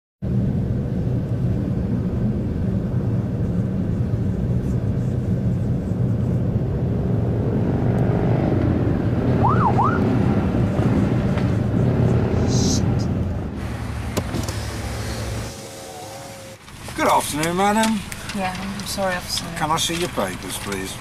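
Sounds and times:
car engine and road drone: 0.2s - 21.0s
police siren whoops: 9.4s - 10.2s.

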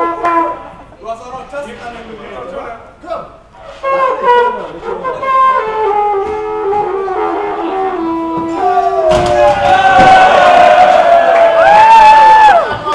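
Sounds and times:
trumpets playing melody: 3.8s - 9.1s.

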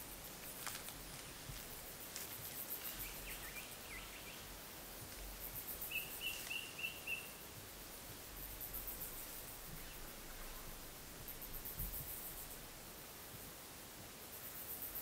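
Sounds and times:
faint high insect chirps: 0.0s - 15.0s
bird calling: 5.8s - 7.4s.

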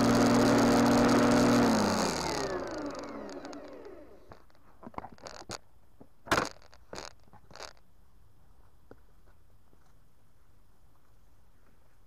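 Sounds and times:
lawnmower spinning down: 0.0s - 4.6s.

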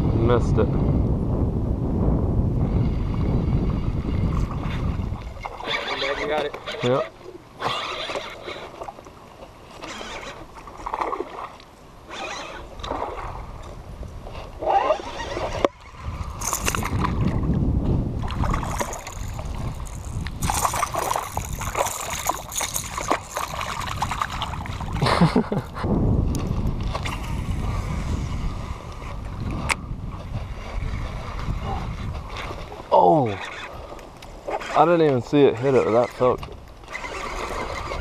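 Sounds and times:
wind buffeting microphone: 0.0s - 6.6s, 12.2s - 38.0s
hands handling fishing rod: 16.4s - 17.2s, 18.5s - 25.0s.

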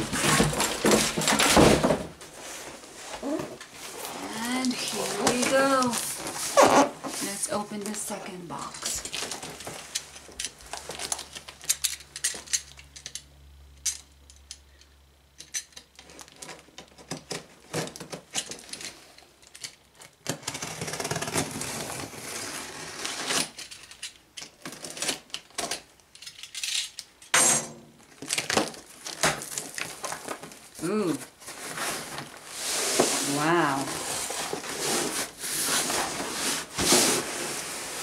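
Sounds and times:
knife scraping cut through tape: 20.4s - 23.6s.

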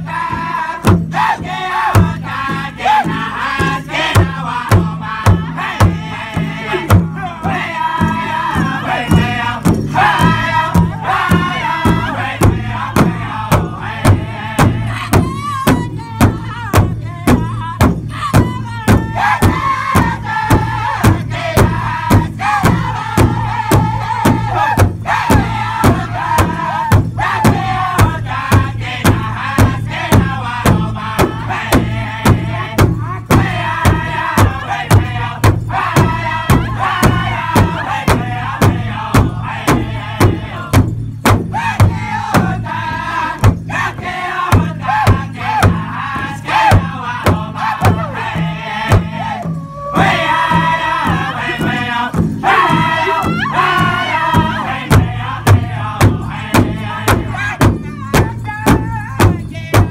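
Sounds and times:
hide drum steady beat: 0.0s - 59.9s
men singing in high voices: 0.0s - 59.9s.

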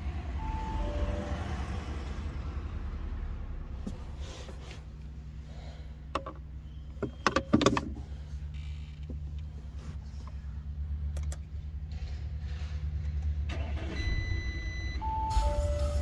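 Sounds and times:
car engine idling: 0.0s - 16.0s
steady high tone: 0.2s - 2.5s.

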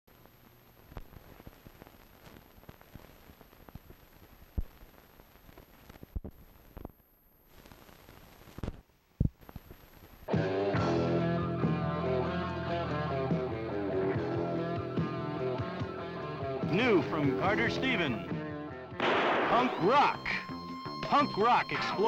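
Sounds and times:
static hiss with pops: 0.1s - 10.5s, 16.6s - 18.2s, 19.0s - 22.0s
rock music with guitar: 10.3s - 22.0s.

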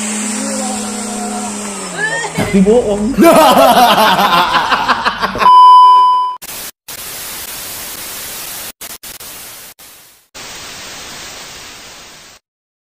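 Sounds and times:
television static hiss: 6.5s - 12.4s.

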